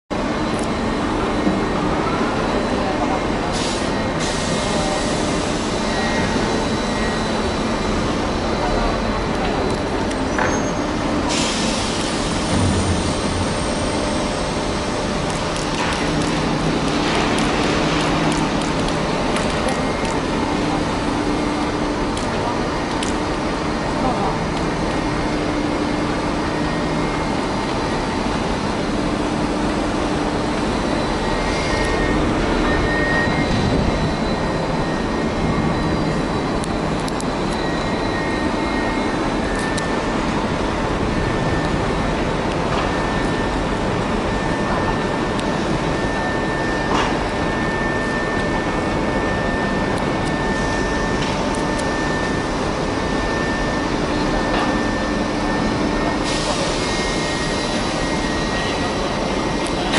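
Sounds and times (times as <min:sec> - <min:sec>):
crane mechanical din: 0:00.1 - 0:59.9
hiss: 0:11.3 - 0:12.5
low hum: 0:12.0 - 0:24.2.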